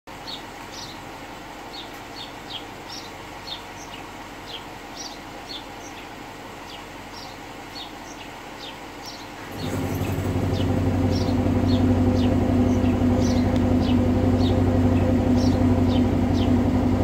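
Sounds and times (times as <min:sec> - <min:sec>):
car engine idling: 0:09.4 - 0:17.0.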